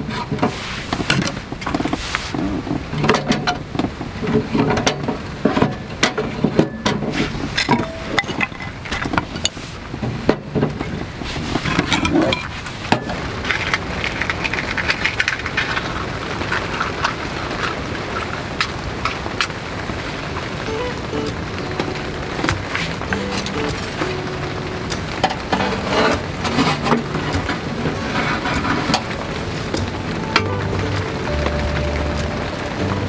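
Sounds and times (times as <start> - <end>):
steady crackling hiss: 0.0 - 33.0
firewood knocking and clattering: 2.9 - 19.6, 21.2 - 32.9
wood striking metal stove: 24.9 - 31.1.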